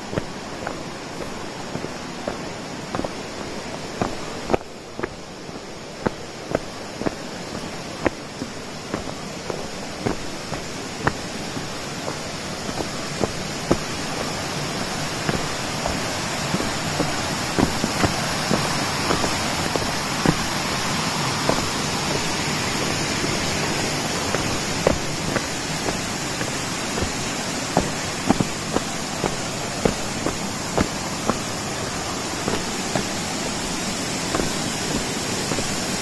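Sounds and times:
footsteps on path: 0.0 - 36.0
waterfall rushing: 0.0 - 36.0.

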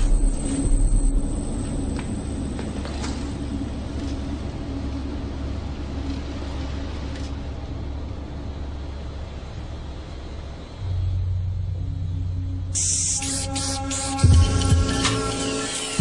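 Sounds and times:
train yard rumble: 0.0 - 16.0
aerosol spray paint hissing: 12.8 - 14.3
broad hiss: 12.8 - 14.6.

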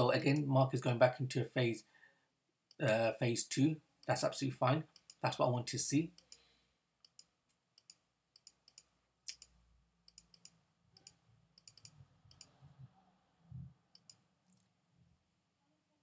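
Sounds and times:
computer mouse clicks: 7.0 - 9.5, 10.1 - 12.6, 13.9 - 14.7.

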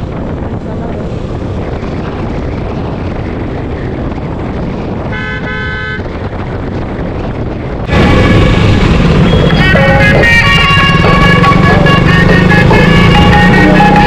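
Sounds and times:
road and wind noise: 0.0 - 14.0
vehicle horn toots: 5.1 - 6.2.

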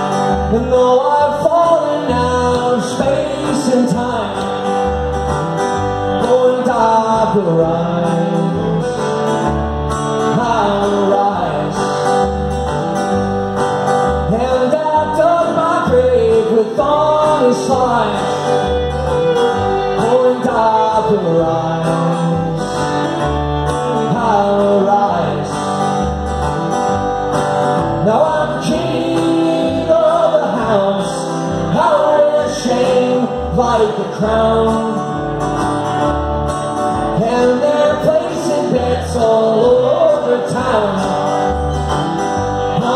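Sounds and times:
man singing: 0.0 - 5.0, 5.8 - 9.5, 10.1 - 12.2, 14.1 - 26.0, 27.9 - 35.4, 37.0 - 41.7, 42.6 - 42.9
strummed acoustic guitar: 0.0 - 42.9
bowed fiddle: 16.5 - 27.4.

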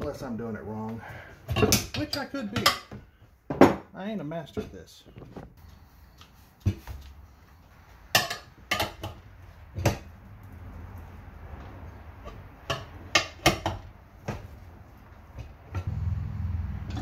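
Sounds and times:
metal tire tools clanking: 1.4 - 3.2, 8.0 - 10.1, 11.0 - 17.0.

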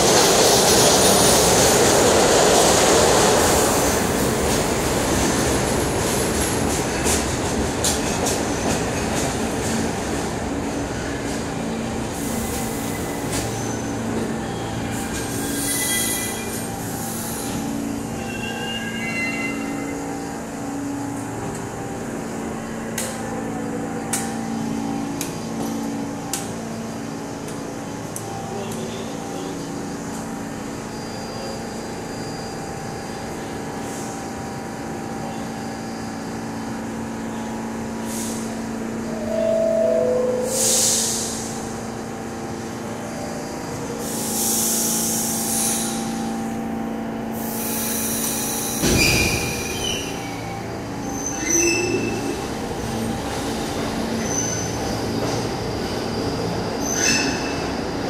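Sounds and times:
subway wheels squealing on rails: 0.0 - 58.0
two-tone descending door chime: 39.1 - 41.1.

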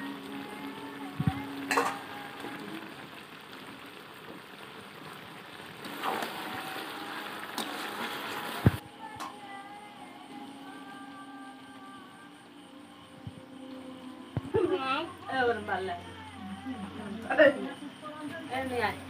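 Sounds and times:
curry sizzling in pan: 0.0 - 9.6.

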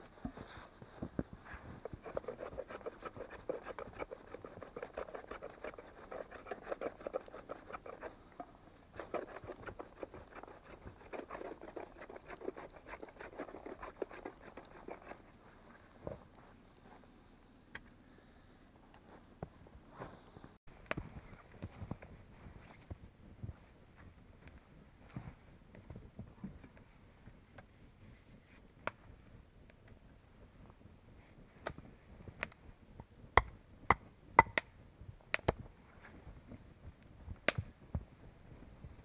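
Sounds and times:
wood scraping by hand: 0.2 - 8.2.

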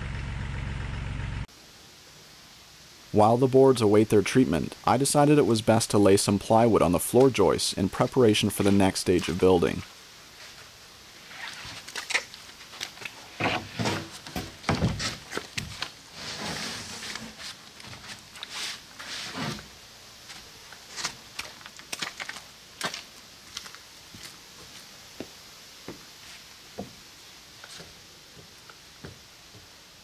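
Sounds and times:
plywood sheets scraping: 11.2 - 23.0
wood knocks and thumps: 13.4 - 15.8.

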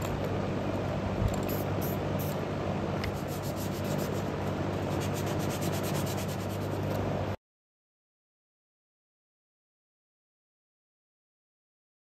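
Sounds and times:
steady low hum: 0.0 - 7.4
sandpaper rubbing back and forth: 3.2 - 4.3, 4.9 - 6.9.

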